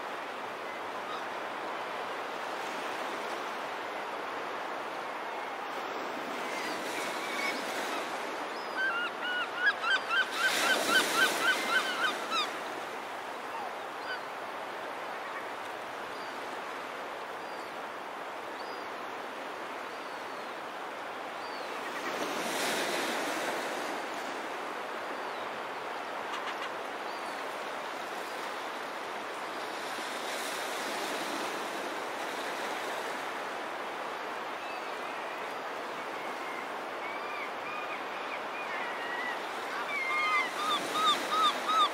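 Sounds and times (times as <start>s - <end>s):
gulls calling: 36.3s - 41.9s.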